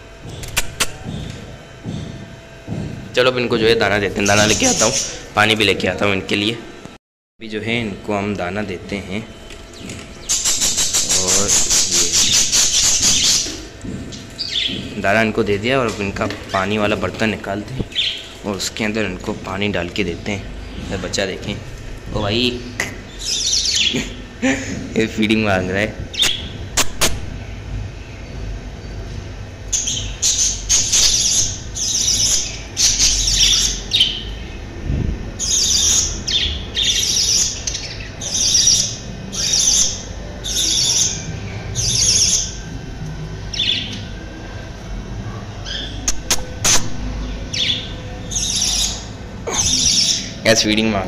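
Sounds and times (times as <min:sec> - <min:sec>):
sharp clicks: 0:00.4 - 0:01.0.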